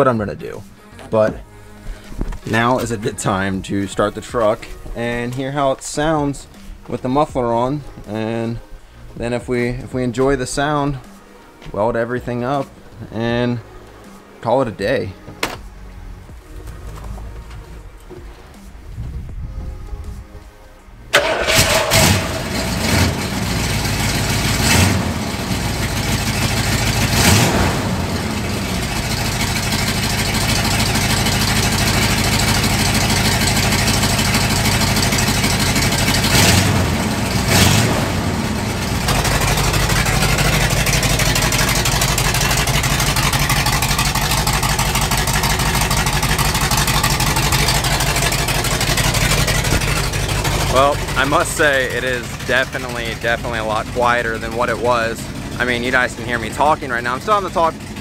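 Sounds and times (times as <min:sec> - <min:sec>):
engine idling: 0:21.1 - 0:58.0
pickup engine starting and revving: 0:21.1 - 0:58.0.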